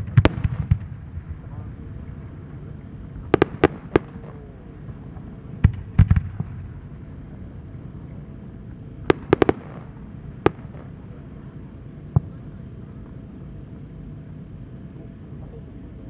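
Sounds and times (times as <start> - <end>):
firework shells bursting: 9.0 - 11.0.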